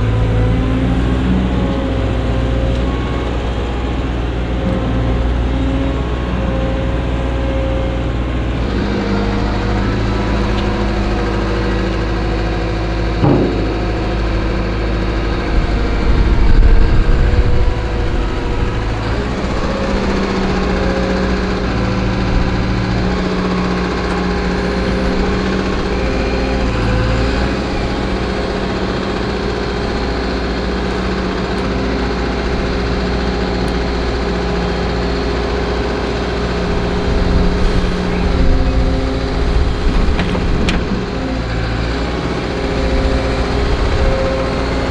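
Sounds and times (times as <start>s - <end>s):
excavator engine and hydraulics: 0.0s - 44.9s
knock: 13.2s - 14.1s.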